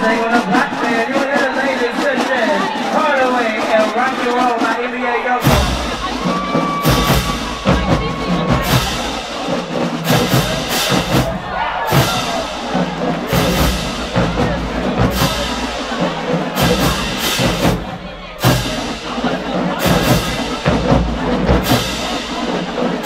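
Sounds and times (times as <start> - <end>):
marching band playing: 0.0 - 23.0
drum and bass drum hits: 5.4 - 23.0.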